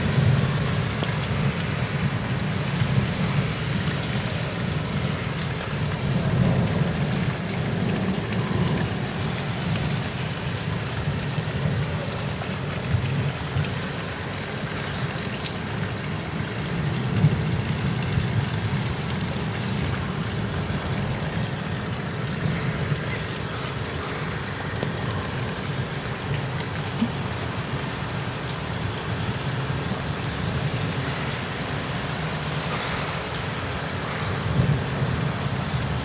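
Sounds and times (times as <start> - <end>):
low thunder rumble: 0.0 - 12.0, 34.2 - 36.0
rain falling: 0.0 - 36.0.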